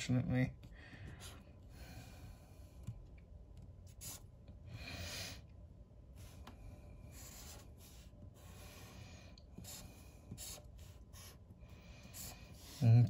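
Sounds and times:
marker rubbing on paper: 3.9s - 4.3s, 7.1s - 9.0s, 9.6s - 13.0s.

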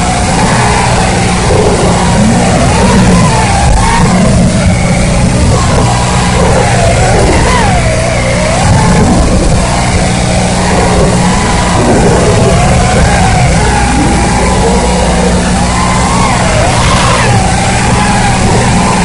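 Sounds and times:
drone motors whining: 0.0s - 19.0s
steady hiss and hum: 0.0s - 19.0s.

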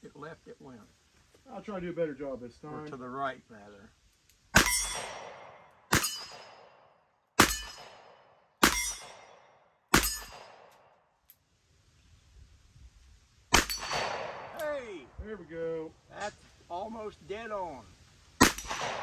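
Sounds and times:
revolver gunshots: 4.5s - 6.8s, 7.4s - 10.7s, 13.5s - 14.6s, 18.4s - 19.0s.

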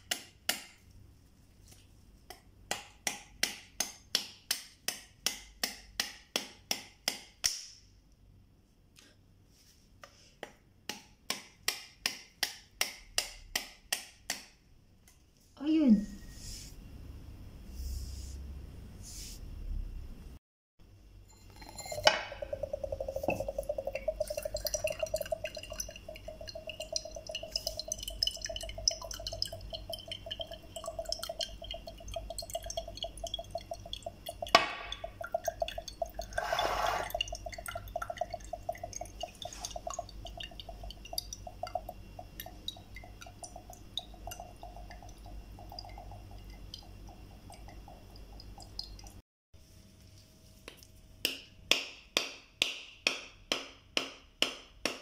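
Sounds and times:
coconut water dripping into a glass: 21.7s - 49.2s.

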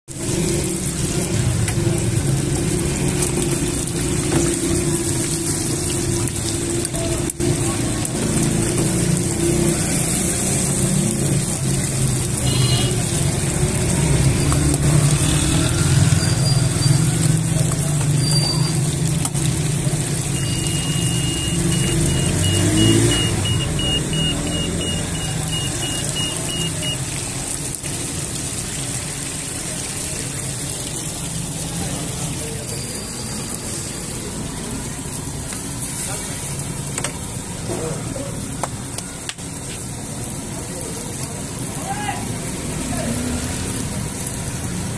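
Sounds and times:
oil bubbling and sizzling: 0.0s - 44.9s
short high beeps: 20.3s - 27.0s.

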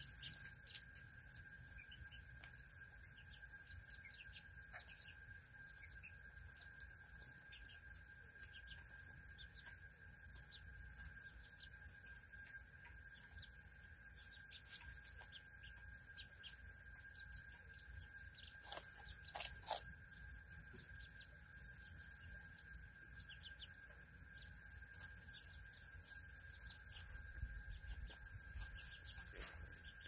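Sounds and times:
bird chirps: 0.0s - 30.0s
high insect buzz: 10.4s - 30.0s.

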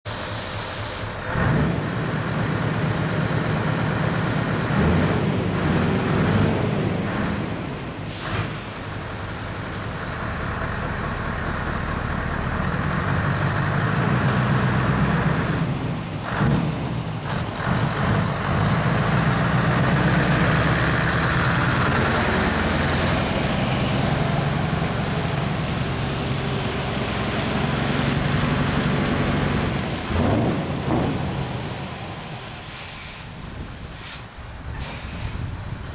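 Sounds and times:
air brake hisses: 0.1s - 1.2s, 8.0s - 8.9s, 32.7s - 35.9s
lorry diesel engine pulling away: 0.1s - 35.9s.

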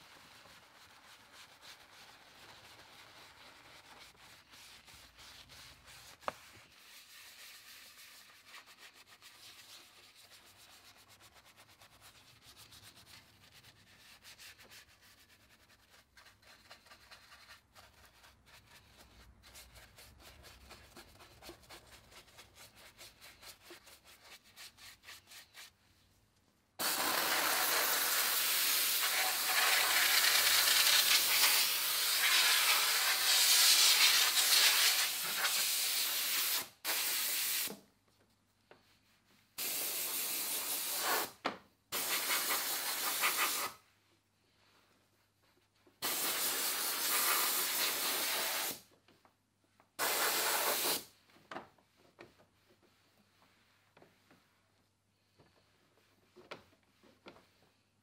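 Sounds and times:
brush scrubbing plastic: 0.0s - 26.2s
steam cleaner hissing: 26.8s - 37.7s, 50.0s - 51.0s.

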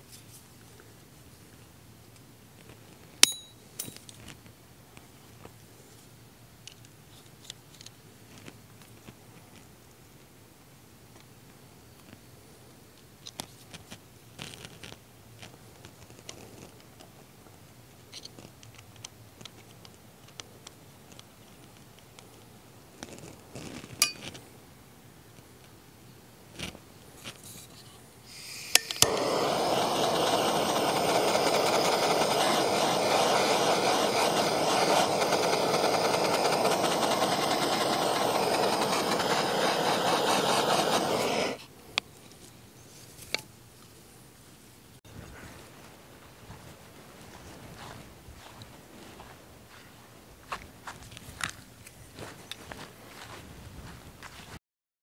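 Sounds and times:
propane torch hissing: 28.2s - 41.6s
torch igniter click: 28.3s - 41.6s.

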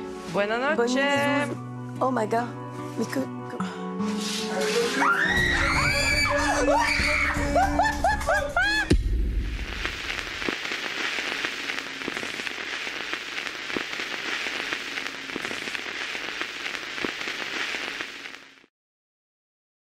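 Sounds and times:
sharp crackles: 8.9s - 18.7s
steady hiss: 9.3s - 18.6s.

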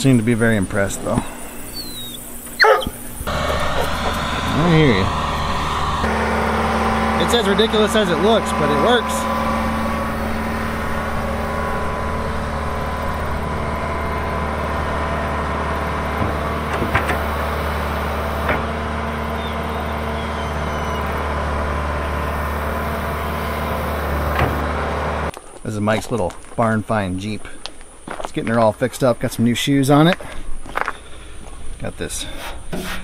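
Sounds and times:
excavator diesel engine droning: 0.0s - 25.3s
sharp knocks: 16.1s - 17.5s.

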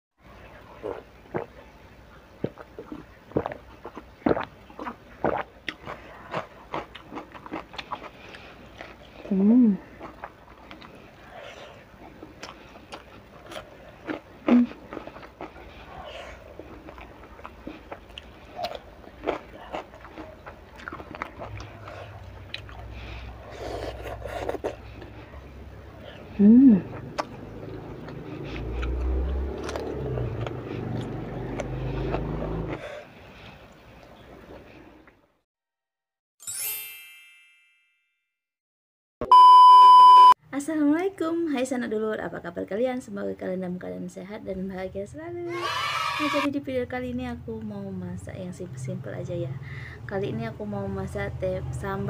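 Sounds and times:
gulping water: 0.4s - 33.2s
chewing food: 0.5s - 1.7s, 2.3s - 35.2s.

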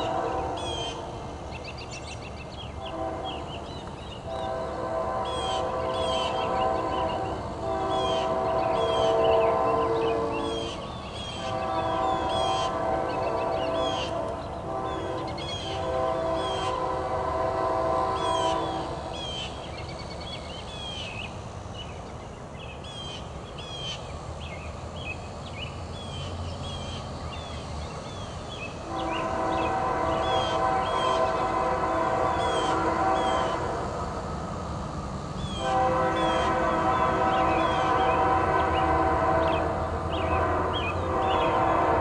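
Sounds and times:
distant locomotive air horn: 0.0s - 1.4s, 2.6s - 19.6s, 28.7s - 34.5s, 35.4s - 42.0s.

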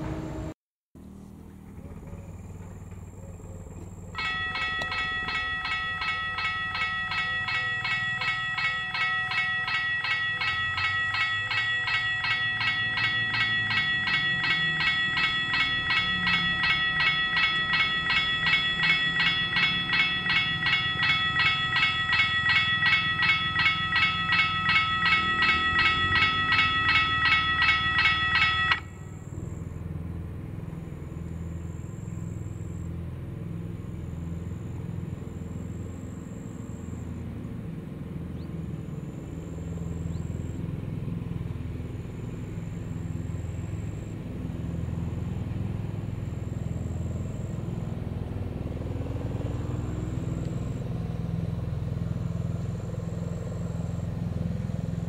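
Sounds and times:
level crossing bells ringing: 4.2s - 29.3s.

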